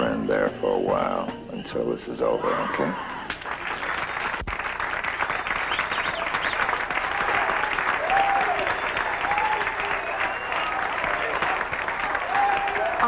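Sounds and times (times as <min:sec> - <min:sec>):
crowd clapping: 0:03.1 - 0:13.0.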